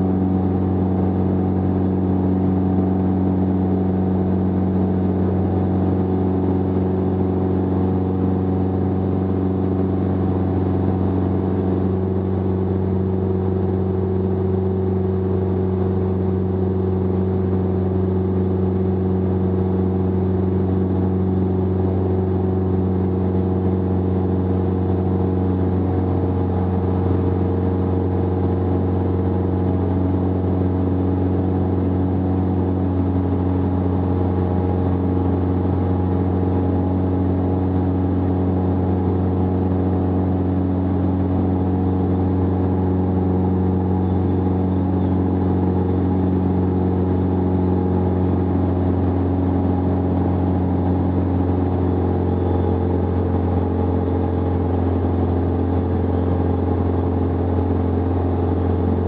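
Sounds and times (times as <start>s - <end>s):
light aircraft engine and propeller: 0.0s - 59.0s.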